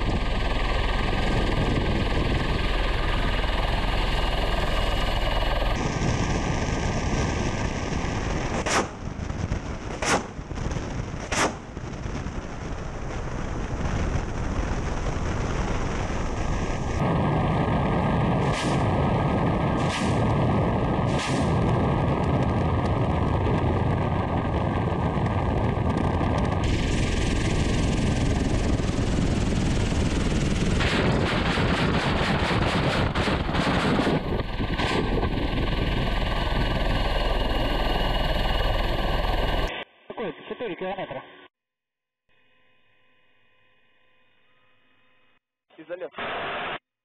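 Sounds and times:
helicopter rotor and engine: 0:00.0 - 0:10.5, 0:11.5 - 0:39.7
wind rush: 0:00.0 - 0:39.8
weapon blasts: 0:08.6 - 0:09.0, 0:10.0 - 0:10.4, 0:11.2 - 0:11.7, 0:18.4 - 0:19.0, 0:19.8 - 0:20.4, 0:21.1 - 0:21.7.

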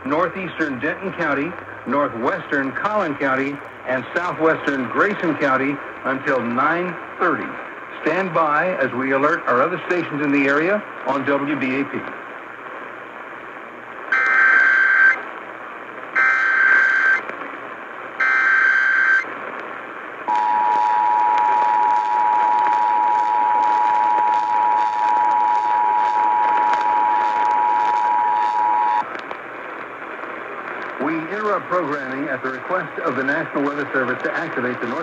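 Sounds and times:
radio static hiss: 0:00.0 - 0:35.0
data tone bursts: 0:14.1 - 0:15.2, 0:16.2 - 0:17.2, 0:18.2 - 0:19.3, 0:20.3 - 0:29.0.

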